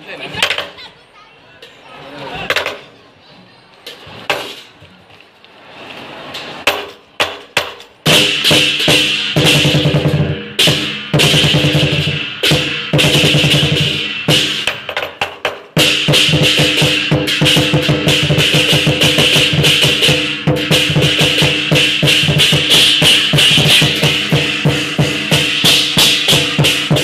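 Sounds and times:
large drum beaten: 8.1s - 27.0s
crashing cymbals: 15.8s - 27.0s.

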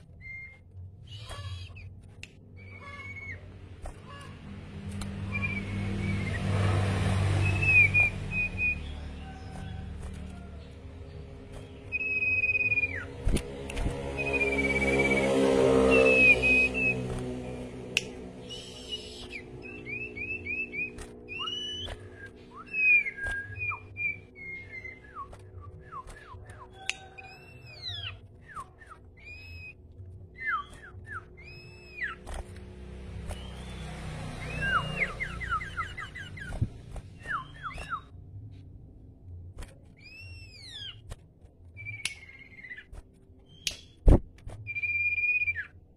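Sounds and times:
songbird whistling: 0.1s - 1.9s, 5.2s - 6.5s, 7.4s - 9.8s, 11.6s - 17.1s, 18.0s - 32.2s, 33.2s - 38.1s, 40.0s - 41.0s, 41.8s - 42.9s, 43.5s - 44.0s, 44.6s - 45.8s.

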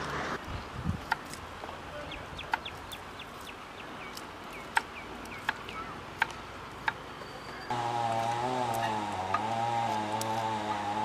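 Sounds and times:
bird chirping: 2.0s - 6.0s, 7.2s - 7.8s.

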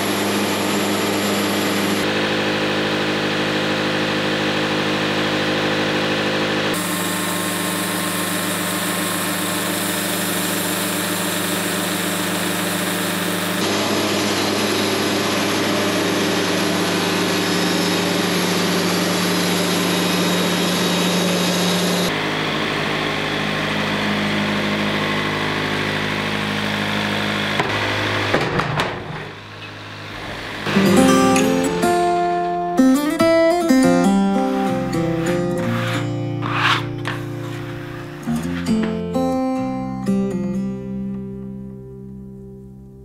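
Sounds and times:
sawmill engine running: 0.0s - 41.0s
band blade sawing through log: 34.1s - 38.8s.

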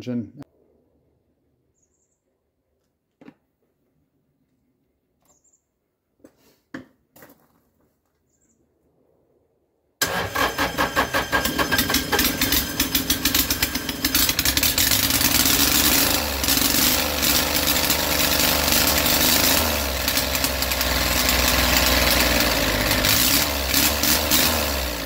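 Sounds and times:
diesel engine running rough: 10.0s - 25.0s.

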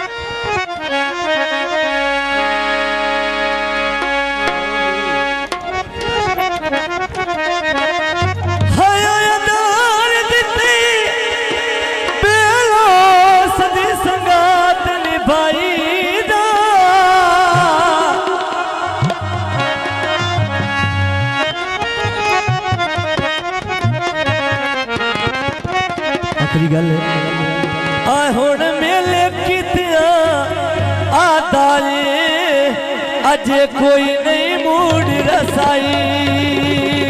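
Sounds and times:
wavering folk melody: 0.0s - 37.0s
hand-drum beats: 3.9s - 9.2s, 17.4s - 31.3s, 34.7s - 37.0s.

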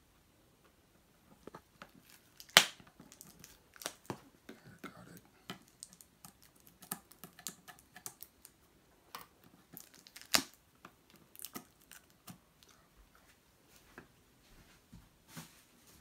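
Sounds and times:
plastic wrap crackling: 1.4s - 8.6s, 9.2s - 12.7s
scissors snipping plastic wrap: 9.8s - 10.6s.

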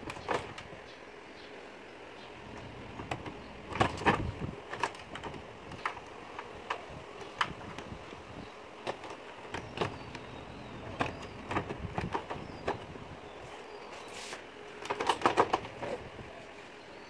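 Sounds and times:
plastic clicks and knocks: 2.5s - 8.0s, 8.8s - 10.3s, 10.9s - 12.9s, 14.8s - 16.0s.

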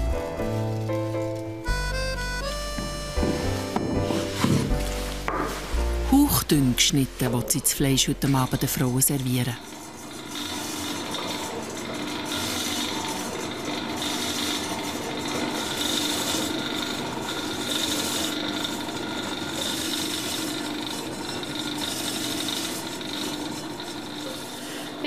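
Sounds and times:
meat slicer motor hum: 0.0s - 25.0s
blade rasping through meat: 8.2s - 25.0s.

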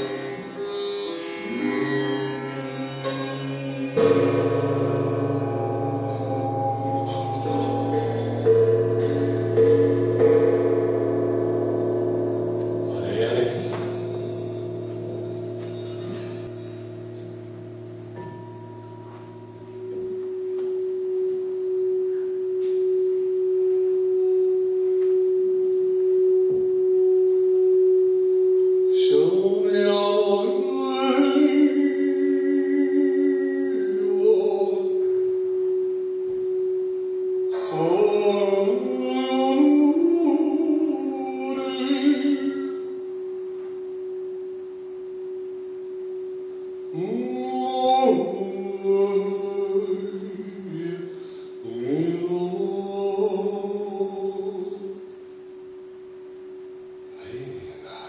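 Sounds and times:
singing bowl ringing tone: 0.0s - 57.4s
person singing wordless chant: 5.3s - 10.0s, 29.0s - 35.2s, 37.5s - 42.9s, 46.9s - 55.0s.

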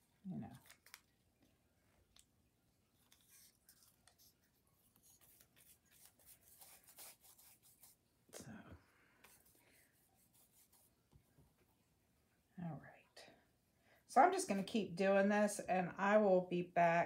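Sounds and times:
glue brush scratchy strokes: 3.0s - 8.0s, 9.2s - 11.0s
paper rustling and rubbing: 3.0s - 8.0s, 9.2s - 11.0s.

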